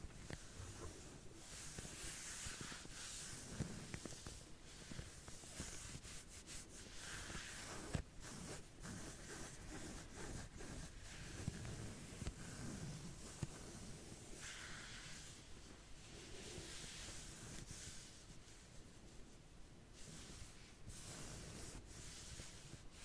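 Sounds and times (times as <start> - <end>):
fingernails scratching skin: 0.3 - 15.3.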